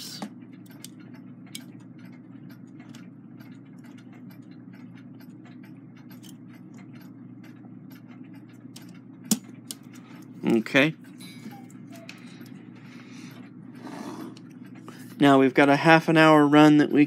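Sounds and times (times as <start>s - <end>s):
steady low hum: 0.0s - 17.0s
metallic clicks of clock gears: 0.4s - 12.6s.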